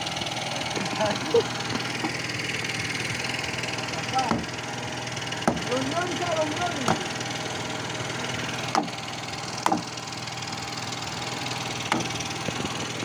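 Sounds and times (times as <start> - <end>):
small engine running: 0.0 - 13.0
sharp knocks on wooden deck: 4.3 - 4.5, 5.4 - 5.7, 6.9 - 7.1, 8.7 - 9.0, 9.6 - 9.9, 11.9 - 12.6.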